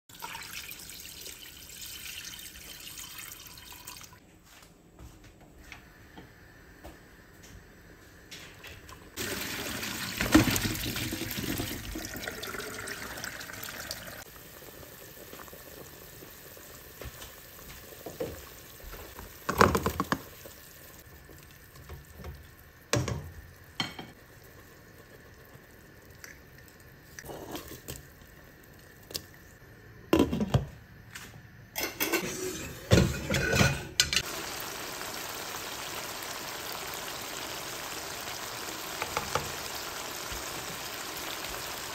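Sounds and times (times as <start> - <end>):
water running into a pot: 0.1 - 4.2, 9.2 - 29.3, 32.1 - 41.9
food splashing into a pot: 9.2 - 26.8, 34.2 - 41.9
cookware clattering: 31.8 - 34.2.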